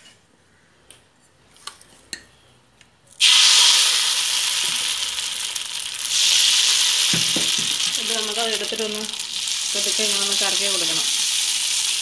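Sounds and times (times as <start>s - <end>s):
batter sizzling on hot pan: 3.2s - 12.0s.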